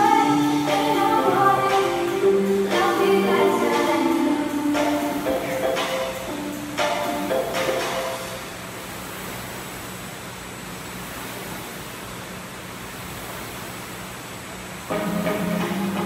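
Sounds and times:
music: 0.0s - 8.4s, 14.9s - 16.0s
rowing machine flywheel whooshing: 6.6s - 16.0s.

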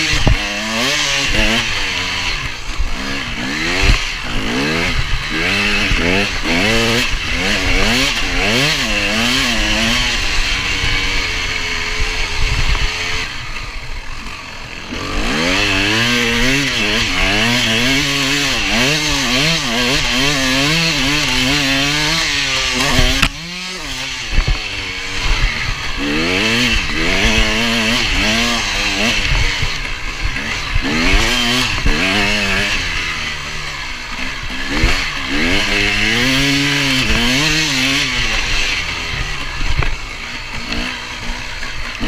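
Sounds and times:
dirt bike engine revving: 0.0s - 42.0s.

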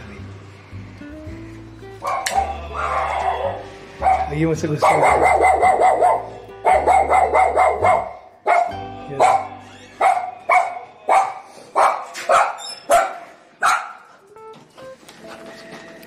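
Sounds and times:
dog barking: 2.0s - 14.1s.

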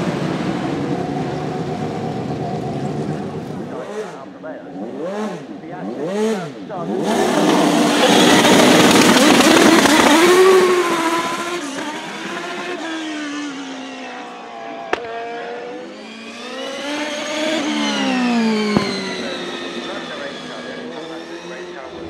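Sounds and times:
race car engine passing: 0.0s - 22.0s.

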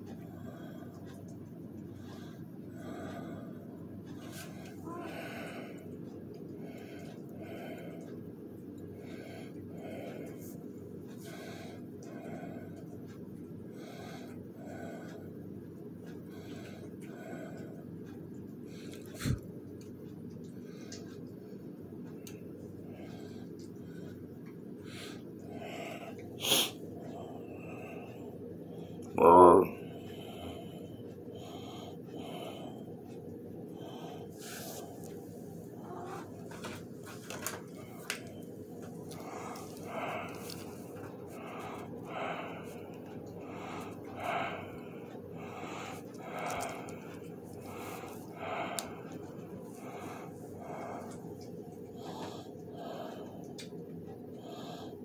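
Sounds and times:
low room hum: 0.0s - 55.0s
heavy wheezy breathing: 22.8s - 55.0s.

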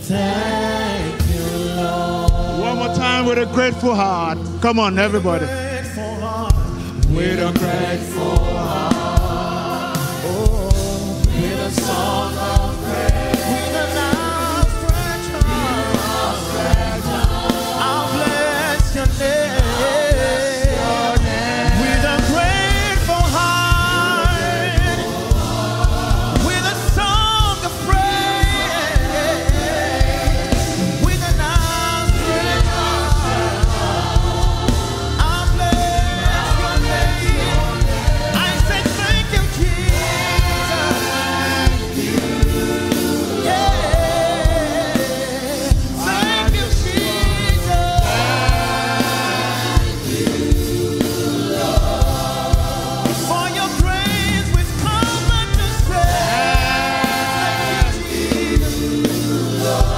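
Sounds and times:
choir and congregation singing: 0.0s - 59.9s
instrumental backing with steady beat: 0.0s - 59.9s.

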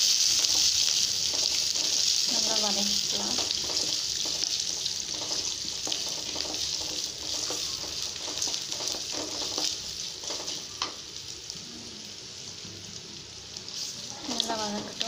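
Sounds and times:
vegetables sizzling in hot oil: 0.0s - 15.0s
wooden spatula scraping a pan: 0.3s - 10.7s.

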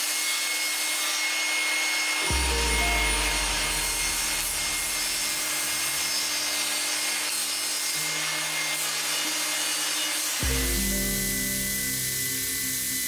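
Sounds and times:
table saw cutting plywood: 0.0s - 13.0s
low rumble: 2.3s - 6.5s.

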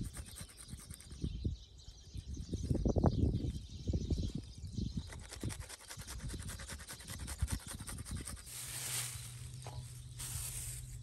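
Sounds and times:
low steady hum: 8.5s - 11.0s.

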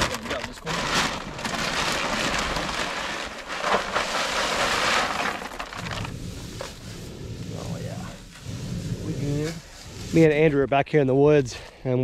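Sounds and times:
corn kernels pouring into trough: 0.0s - 6.1s.

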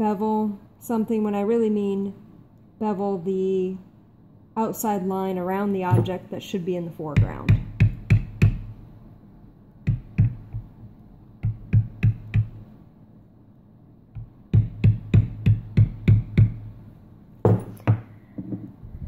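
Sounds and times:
loud knocks: 5.9s - 6.2s, 17.5s - 18.6s.

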